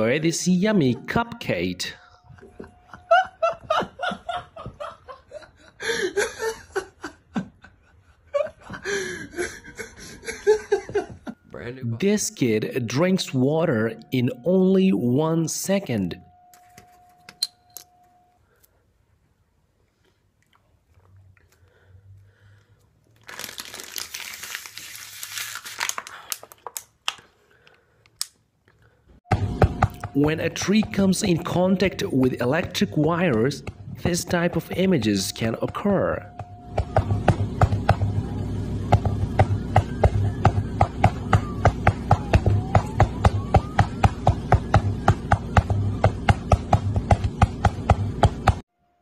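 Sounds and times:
person laughing: 1.9 - 11.4
plastic bottle crinkling: 23.1 - 27.8.

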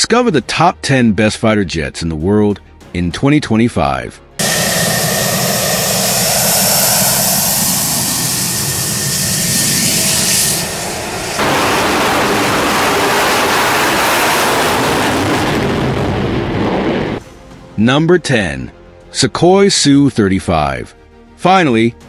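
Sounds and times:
jet afterburner roar: 4.4 - 17.2
jet engine roar with high whine: 4.4 - 17.2.

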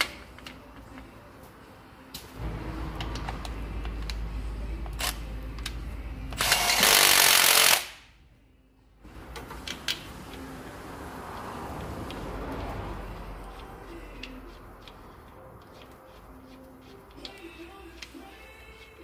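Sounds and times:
impact wrench spinning and hammering: 6.4 - 8.1.

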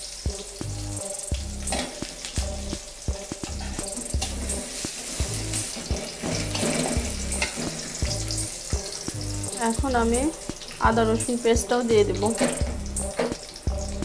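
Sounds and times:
onions sizzling in hot oil: 0.0 - 14.0
metal spatula scraping a pan: 1.7 - 2.1, 3.5 - 9.3.

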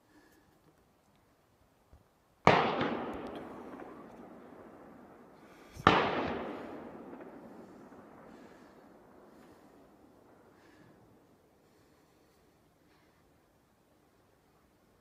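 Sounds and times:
rifle shots with echo: 2.4 - 11.2.

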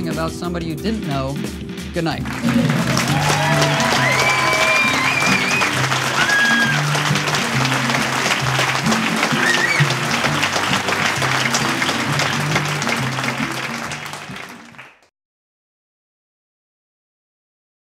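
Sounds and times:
theme music with bass: 0.0 - 14.9
audience applause: 2.2 - 15.1
whistle from crowd: 3.1 - 7.1, 9.3 - 10.2.

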